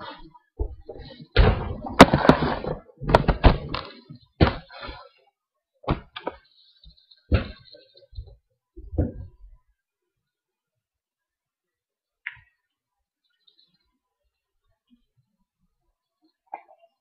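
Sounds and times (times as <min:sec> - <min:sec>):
sharp knocks and thuds: 0:00.6 - 0:04.7, 0:05.8 - 0:06.4, 0:07.3 - 0:09.4.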